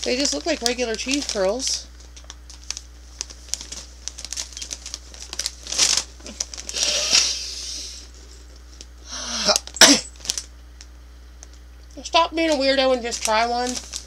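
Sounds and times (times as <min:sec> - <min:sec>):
plastic bag crinkling: 0:00.0 - 0:07.4, 0:09.5 - 0:10.5, 0:12.4 - 0:14.0.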